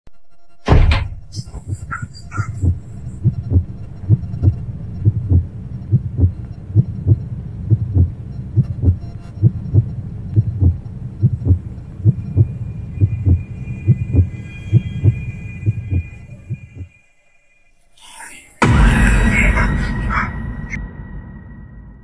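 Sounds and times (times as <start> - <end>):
heartbeat thumps: 0.7 - 16.9
faint steady high tone: 1.4 - 18.6.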